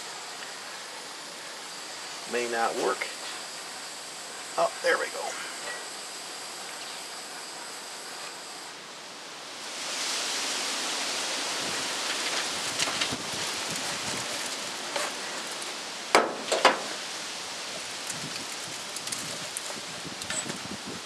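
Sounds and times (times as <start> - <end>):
wind rushing hiss: 0.0 - 21.0
faint crackles: 11.6 - 15.9, 16.9 - 20.7.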